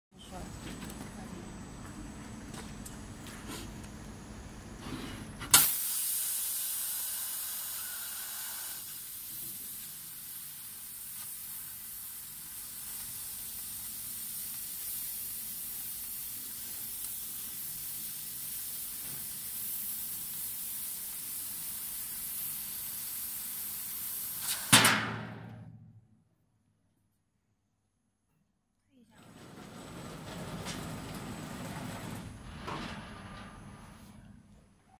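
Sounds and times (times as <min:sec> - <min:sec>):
high-pitched gas jet hiss: 0:04.9 - 0:24.8.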